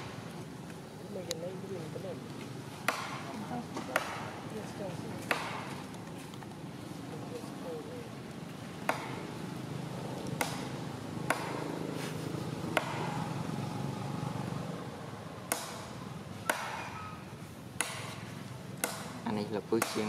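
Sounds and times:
sharp knocks: 0:05.2 - 0:05.8, 0:10.4 - 0:11.7, 0:12.7 - 0:13.2, 0:15.5 - 0:17.0, 0:17.8 - 0:19.2.

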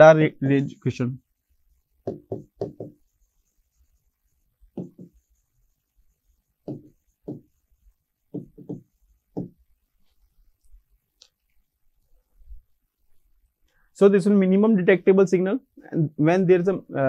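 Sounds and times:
pen knocking on board: 0:02.0 - 0:03.0, 0:04.7 - 0:05.2, 0:06.6 - 0:07.5, 0:08.3 - 0:09.6.

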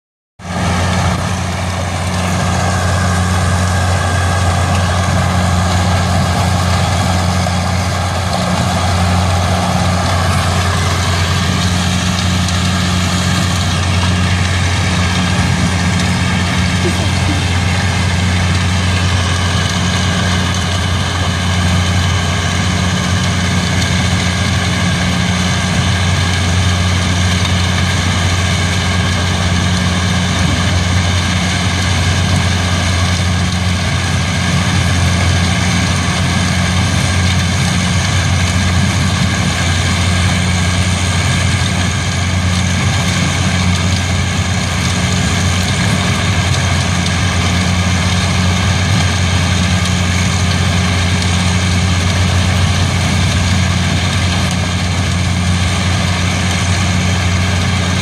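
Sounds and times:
deep drone of machinery: 0:00.4 - 0:58.0.

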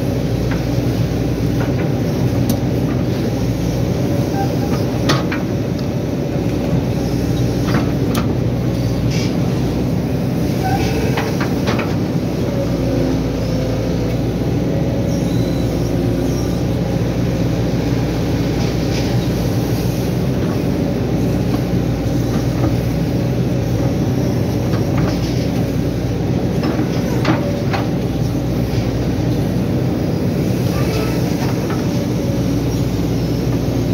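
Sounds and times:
excavator diesel engine running: 0:00.0 - 0:33.9.

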